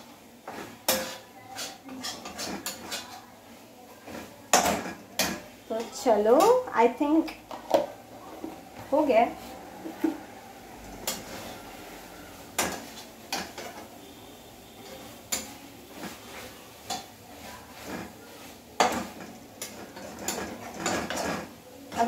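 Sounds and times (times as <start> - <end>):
metal spoon clinking on steel pot: 14.8 - 15.6, 16.8 - 17.1, 18.8 - 22.0.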